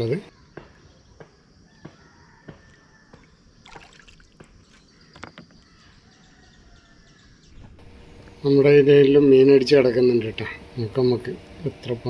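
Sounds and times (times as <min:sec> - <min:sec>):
faint bird calls: 0:04.4 - 0:08.2.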